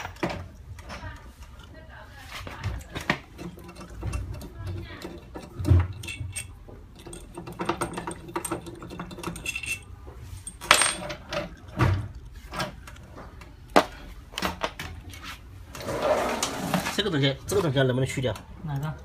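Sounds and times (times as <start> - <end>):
metal parts and tools clinking: 2.5 - 13.0.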